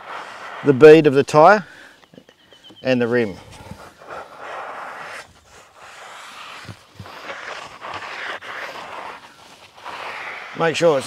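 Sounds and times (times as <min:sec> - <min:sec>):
wet swishing strokes: 0:03.2 - 0:11.0.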